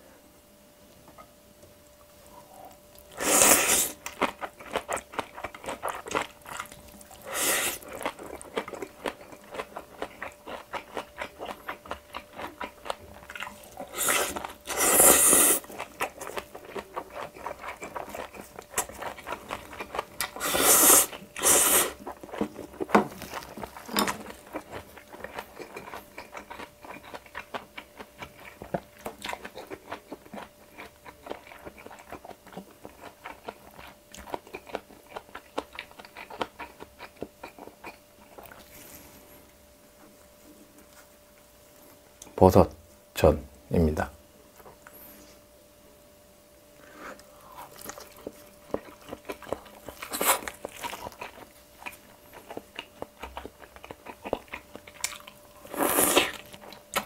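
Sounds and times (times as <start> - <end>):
wet chewing and lip smacking: 15.6 - 38.7, 47.2 - 57.0.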